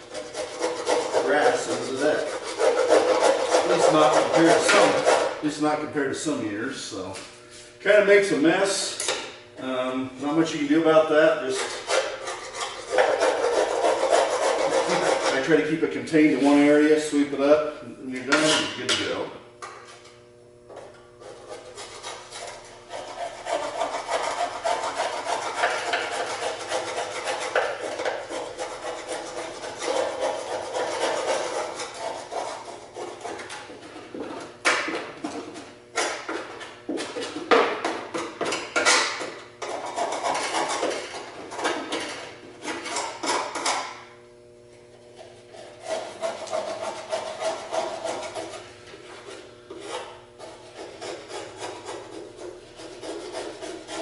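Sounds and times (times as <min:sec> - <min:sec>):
hand scraper rasping on metal: 0:00.0 - 0:05.4, 0:11.4 - 0:15.7, 0:21.2 - 0:43.9, 0:45.1 - 0:54.0.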